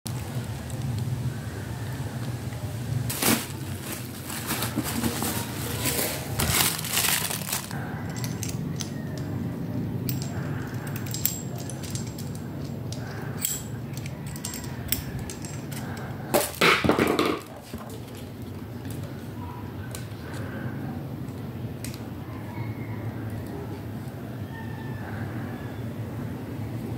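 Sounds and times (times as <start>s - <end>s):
plastic bag crinkling: 3.1s - 7.8s
plastic packaging crinkling: 3.1s - 7.8s.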